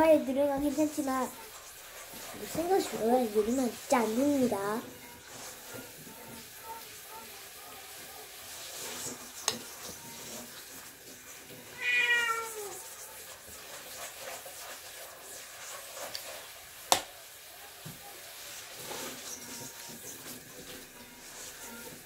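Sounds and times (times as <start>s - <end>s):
cat meowing: 11.7s - 12.8s.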